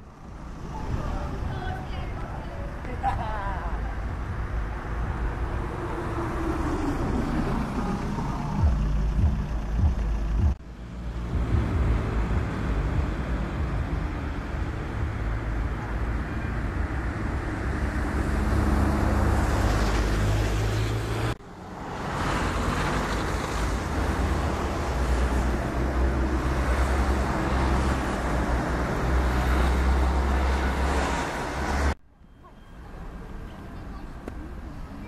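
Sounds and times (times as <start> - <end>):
strong low rumble: 7.0 - 14.7.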